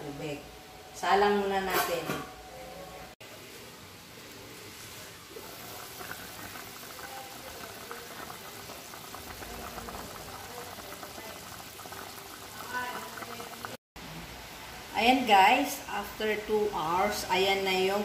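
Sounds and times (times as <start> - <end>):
pot of broth bubbling: 4.9 - 13.8.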